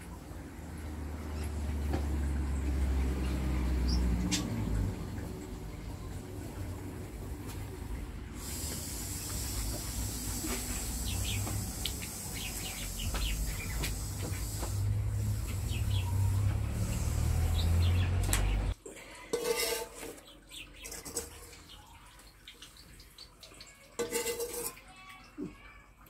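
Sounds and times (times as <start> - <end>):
small birds chirping: 8.9 - 18.8, 20.2 - 23.8.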